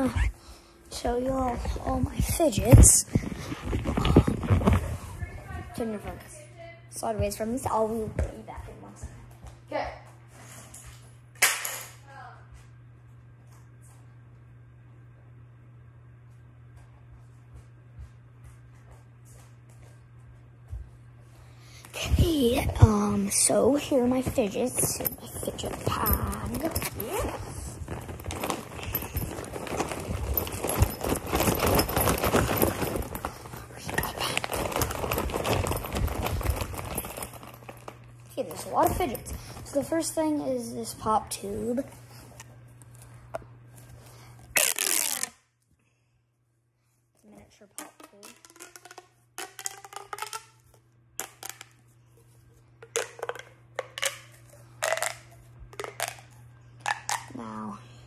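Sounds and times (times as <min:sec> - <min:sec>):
steady low hum: 0:00.0 - 0:58.0
toys rattling in fabric case: 0:23.5 - 0:39.9
plastic pop tube popping: 0:47.8 - 0:51.7, 0:52.8 - 0:57.3.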